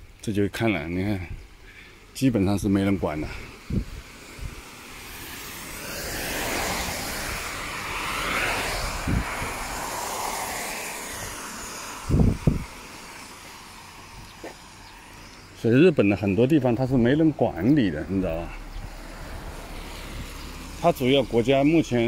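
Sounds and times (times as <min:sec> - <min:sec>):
vehicle passing: 0:03.0 - 0:22.0.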